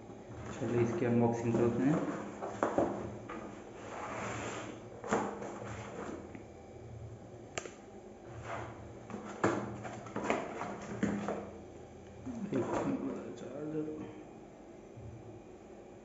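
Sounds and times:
cardboard rubbing and scraping: 0.4 - 6.3, 8.2 - 11.4.

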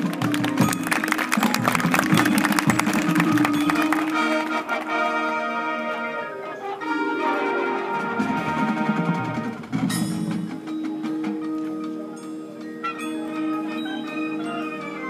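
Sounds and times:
mallet percussion and chimes: 0.0 - 5.0, 6.2 - 15.0
marching band wind chords: 0.0 - 15.0.

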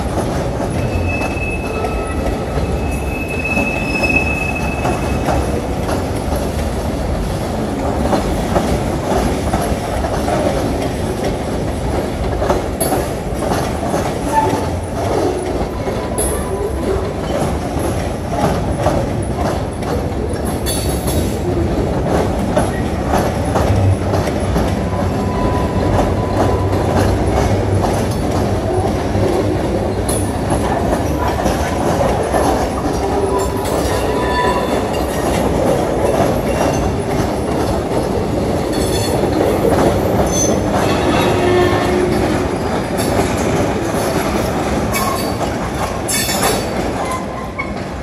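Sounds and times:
train wheels clattering over rail joints: 0.0 - 48.0
train wheel squeals: 0.6 - 5.7, 24.9 - 27.5, 29.9 - 35.4, 38.7 - 43.2, 44.9 - 45.5, 46.1 - 47.8.

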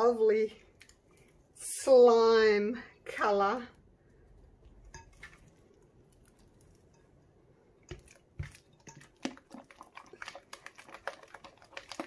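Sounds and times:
slime squelching: 3.8 - 12.0.

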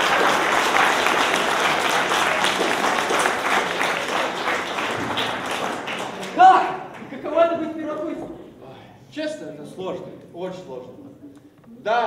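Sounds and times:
crowd applause: 0.0 - 7.4.

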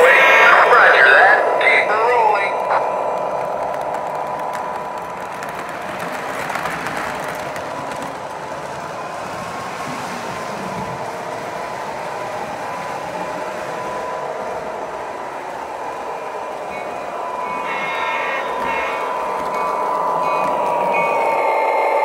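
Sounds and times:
model train wheels rumbling: 0.0 - 22.0
model train motor whine: 16.4 - 22.0.

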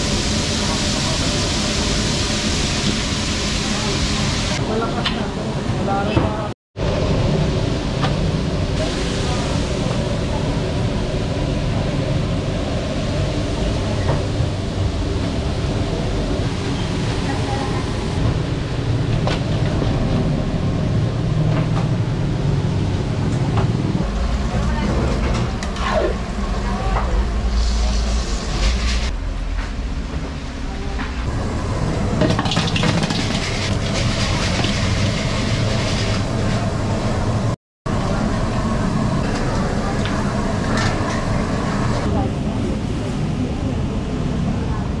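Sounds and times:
chicken deep-frying in oil: 0.0 - 4.6, 32.2 - 36.7
gas burners rumbling and hissing: 0.0 - 45.0.

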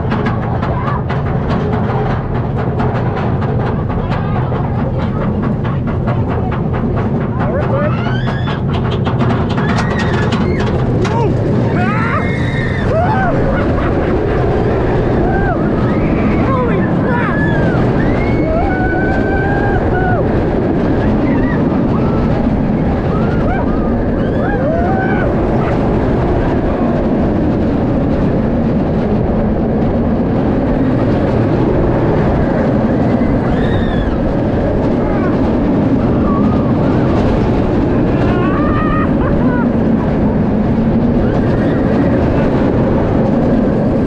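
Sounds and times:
roller coaster wind and wheels: 0.0 - 44.0.

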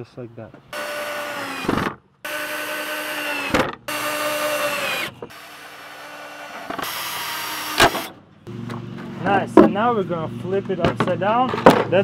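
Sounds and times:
power drill whining: 0.7 - 8.1.

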